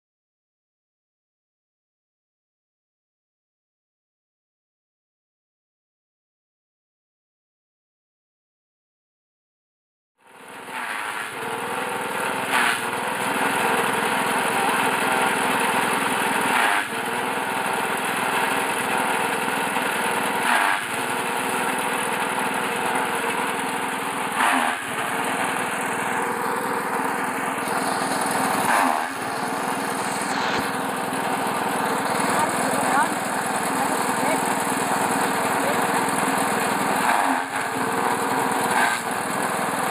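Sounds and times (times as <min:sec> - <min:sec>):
forage chopper engine running: 0:10.2 - 0:39.9
blades chopping stalks: 0:10.7 - 0:11.4, 0:12.4 - 0:13.7, 0:16.0 - 0:17.0, 0:19.9 - 0:35.8, 0:37.0 - 0:37.8, 0:38.7 - 0:39.1.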